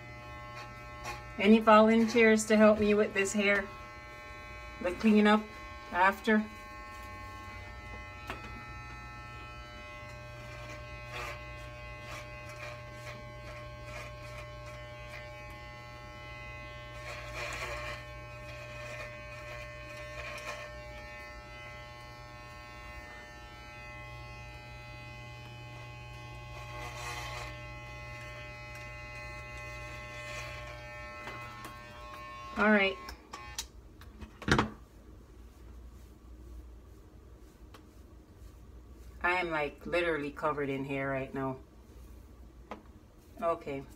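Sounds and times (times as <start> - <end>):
electric hair clippers buzzing: 0.0 - 33.8.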